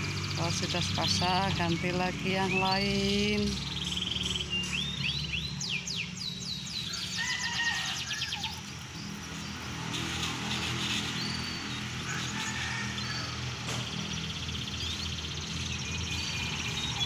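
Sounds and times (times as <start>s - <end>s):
canaries singing: 0.0s - 17.0s.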